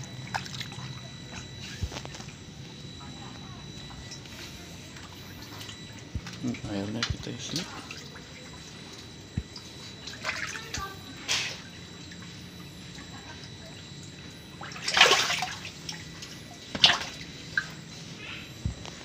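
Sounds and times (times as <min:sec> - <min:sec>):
fish splashing at surface: 0:14.7 - 0:16.0.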